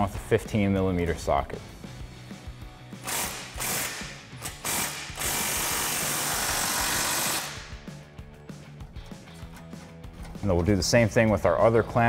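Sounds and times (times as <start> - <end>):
electric ratchet spinning: 3.0 - 7.8.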